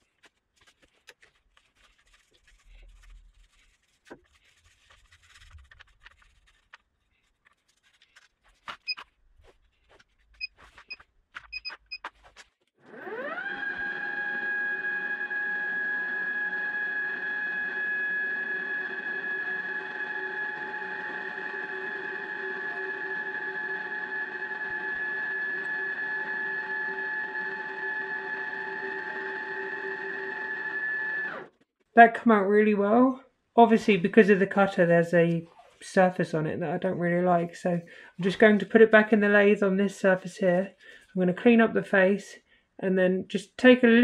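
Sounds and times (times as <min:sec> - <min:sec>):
milling machine motor whine: 0:12.9 - 0:31.5.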